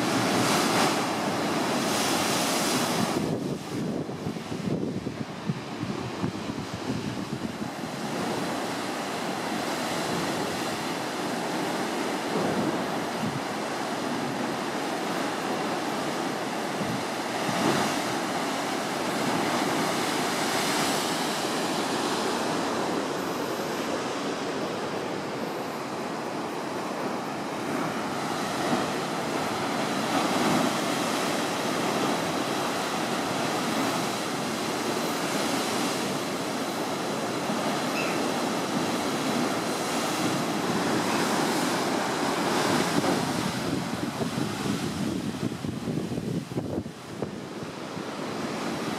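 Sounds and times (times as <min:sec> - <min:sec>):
ocean surf rushing through rock gorge: 0:00.0 - 0:48.9.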